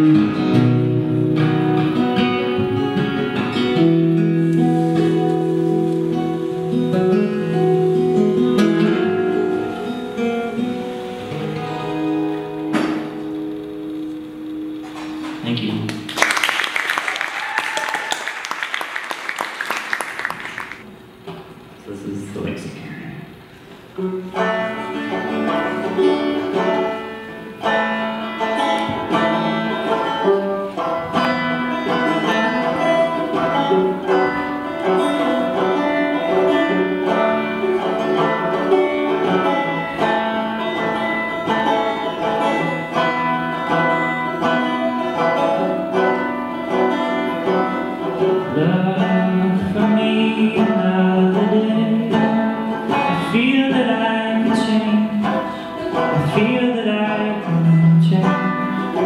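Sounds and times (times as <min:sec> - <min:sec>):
banjo picking: 0:00.0 - 0:15.8, 0:23.9 - 0:59.0
man singing: 0:48.4 - 0:59.0.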